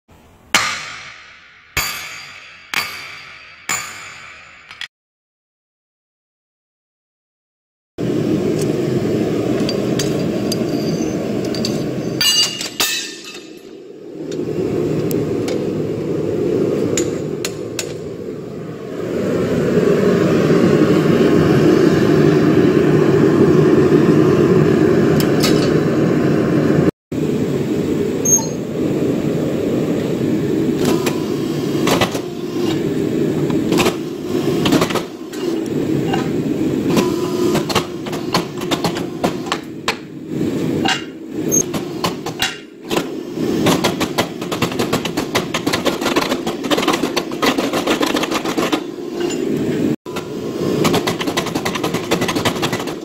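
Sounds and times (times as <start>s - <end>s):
power hammer striking steel: 0.5s - 4.9s, 9.6s - 13.8s
gas forge rushing: 8.0s - 53.0s.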